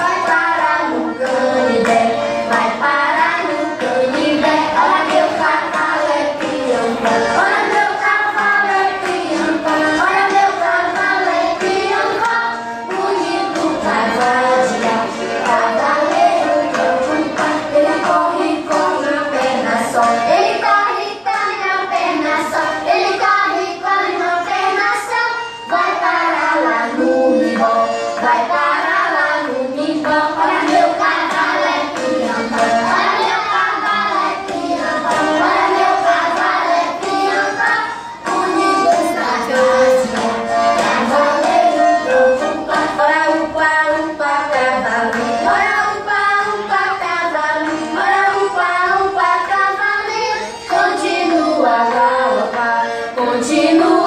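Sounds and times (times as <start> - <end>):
song with singing: 0.0 - 54.0.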